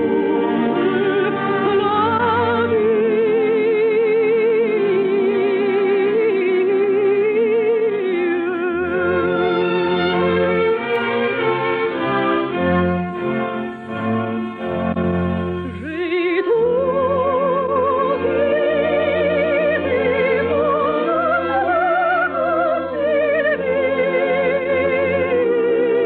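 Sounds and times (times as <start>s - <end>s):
orchestral accompaniment: 0.0s - 26.0s
operatic voice singing: 15.8s - 26.0s.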